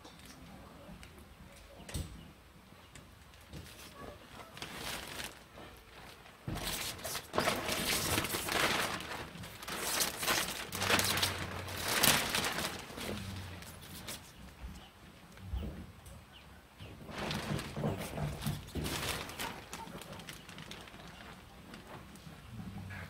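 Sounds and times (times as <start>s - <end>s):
plastic film crackling: 3.7s - 14.6s, 17.0s - 22.4s.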